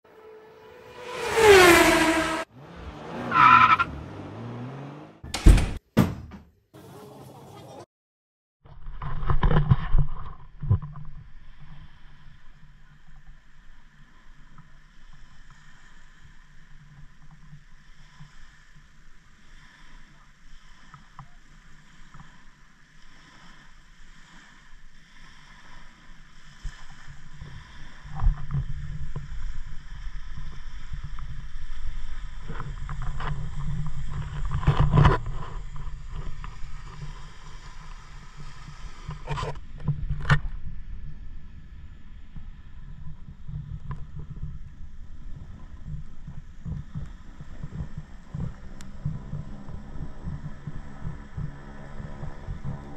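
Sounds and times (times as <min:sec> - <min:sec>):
seaplane engines droning: 0:44.5 - 0:52.9.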